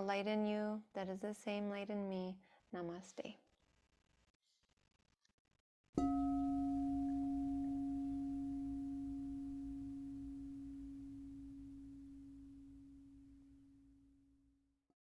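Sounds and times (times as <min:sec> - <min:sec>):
singing bowl ringing: 0:06.0 - 0:14.2.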